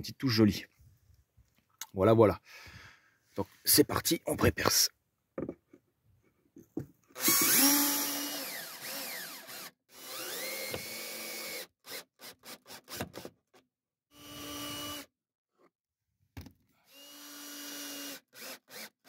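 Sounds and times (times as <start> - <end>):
cordless drill drilling wood: 7.1 - 15.1, 16.8 - 19.0.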